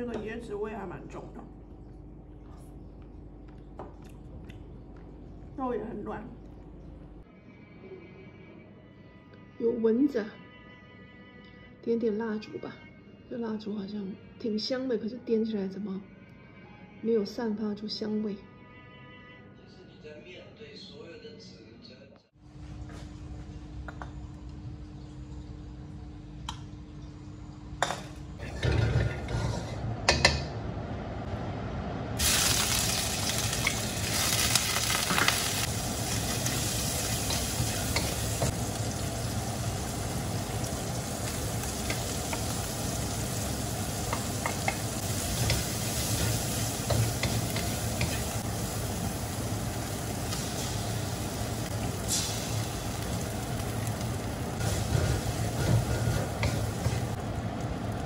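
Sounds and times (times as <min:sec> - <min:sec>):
fried rice sizzling in a pan: 0:32.2 - 0:58.0.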